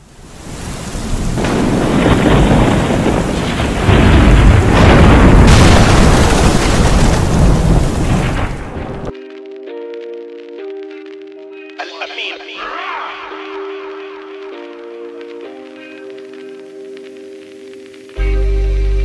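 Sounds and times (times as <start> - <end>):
rain: 0.0 - 9.2, 12.7 - 19.0
rolling thunder: 1.0 - 9.1
sharp thunderclap: 1.1 - 9.1
music: 9.1 - 19.0.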